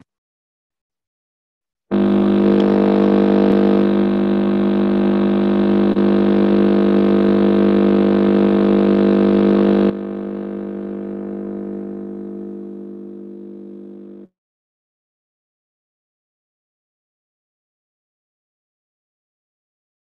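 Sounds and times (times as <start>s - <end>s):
electronic drone: 1.9s - 14.2s.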